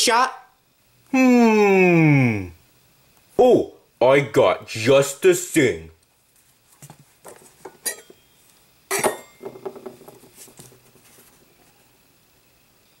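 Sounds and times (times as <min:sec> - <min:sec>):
objects knocking and clinking: 0:07.6 - 0:08.2, 0:08.9 - 0:10.8.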